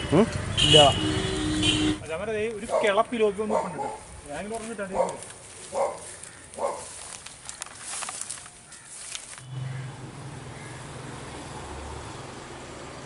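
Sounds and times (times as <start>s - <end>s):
light rustling: 4.0s - 9.5s
low engine hum: 9.4s - 13.0s.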